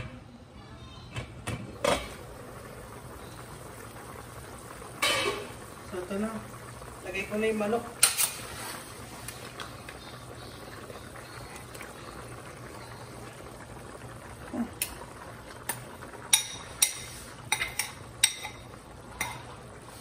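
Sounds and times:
broth simmering in a pot: 0.0 - 20.0
metal pot lid clinking: 5.0 - 5.5, 16.3 - 19.5.

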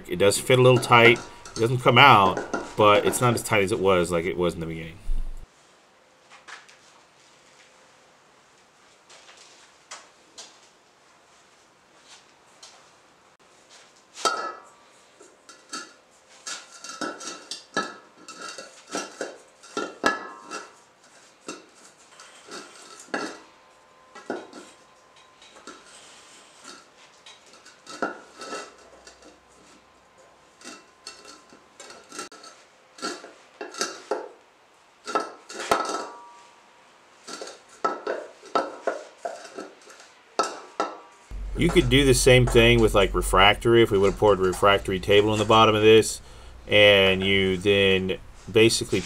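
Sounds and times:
knife and hands on metal: 0.3 - 5.4.

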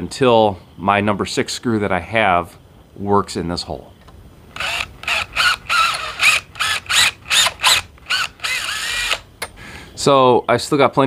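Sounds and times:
cordless drill boring steel: 4.6 - 9.3.

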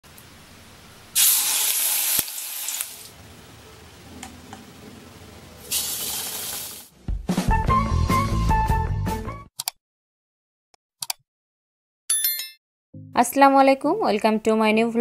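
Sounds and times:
battered pieces sizzling in hot oil: 1.1 - 3.2, 5.6 - 6.9
faint oil hiss: 1.1 - 6.9.

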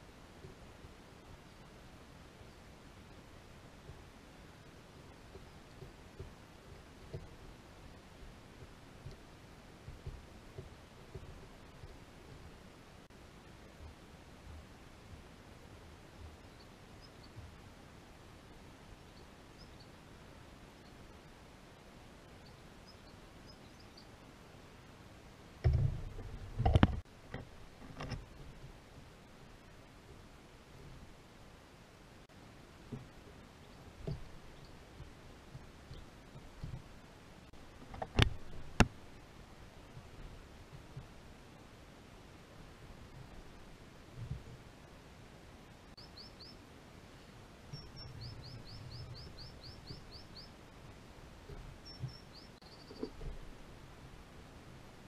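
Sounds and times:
faint low rumble: 0.0 - 55.0
bird chirps: 19.2 - 19.9, 22.4 - 24.2, 46.0 - 46.6, 47.7 - 50.6, 51.8 - 53.3
camera mount rumbling and knocking: 25.6 - 28.4, 37.8 - 39.0.

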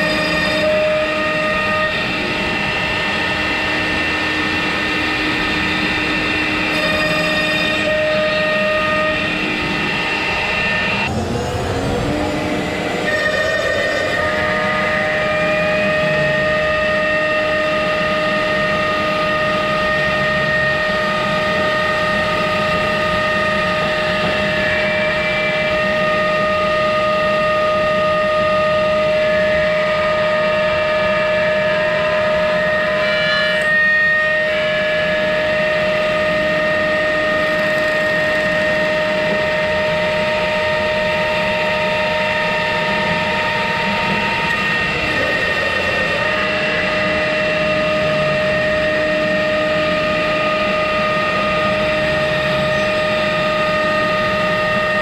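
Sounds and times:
bit cutting through wood: 0.0 - 26.8, 42.9 - 49.3
router spindle high whine: 0.0 - 55.0.

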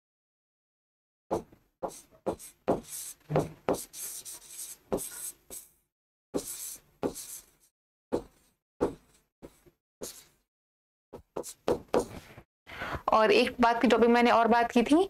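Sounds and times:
pen tapping and scratching on screen: 1.3 - 5.7, 6.4 - 10.4, 11.2 - 12.3.

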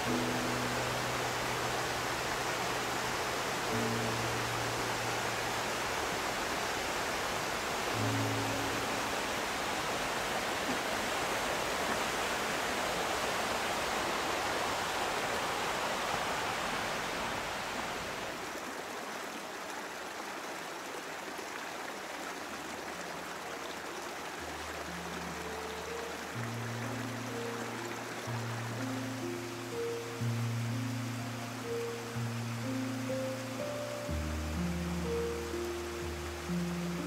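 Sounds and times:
low background music: 0.0 - 11.9, 24.3 - 37.0
stream water flowing: 0.0 - 37.0.

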